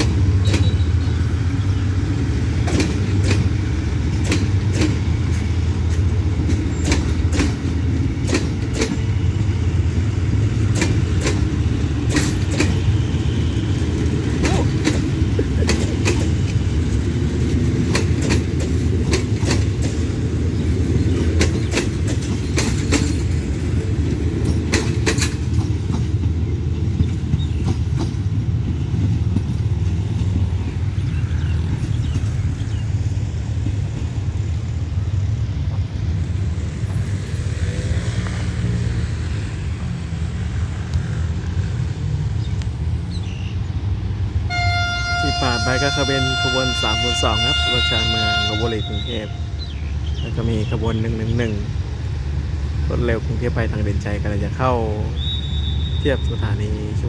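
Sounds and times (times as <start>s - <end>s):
train wheels clacking on track: 0.0s - 35.0s
train coaches rumbling past: 0.0s - 57.0s.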